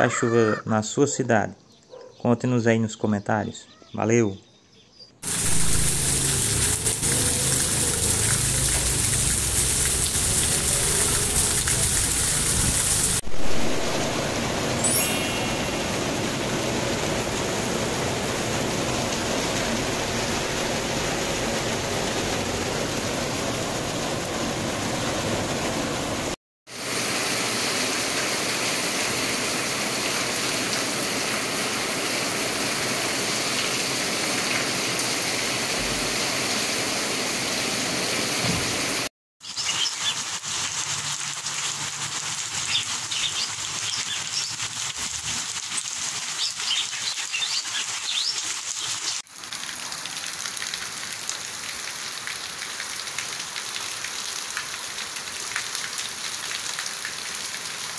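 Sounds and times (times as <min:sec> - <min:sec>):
drips and patter: 0:05.2 - 0:13.2, 0:39.4 - 0:57.9
steady rain hiss: 0:05.2 - 0:26.1, 0:26.7 - 0:57.9.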